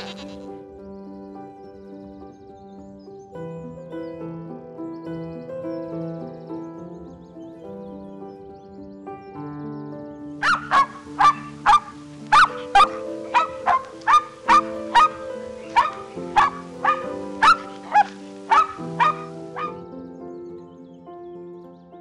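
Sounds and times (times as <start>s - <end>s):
soft background music: 0.0s - 22.0s
small dog yapping: 10.4s - 19.8s.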